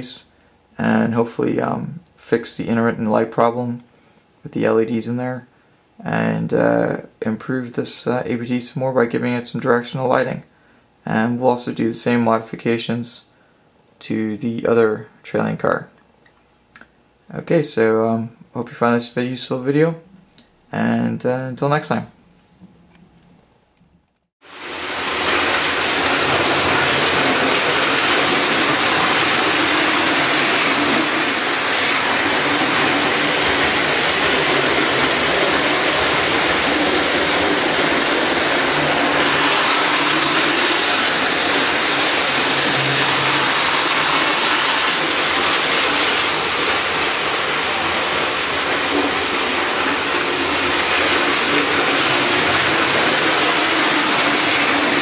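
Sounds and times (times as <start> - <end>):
loud steady rushing noise: 24.5 - 55.0.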